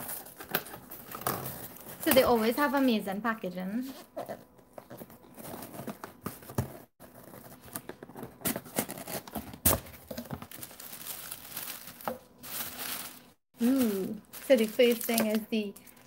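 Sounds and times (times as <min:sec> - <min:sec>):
paper rustling and crinkling: 0:04.7 - 0:16.0.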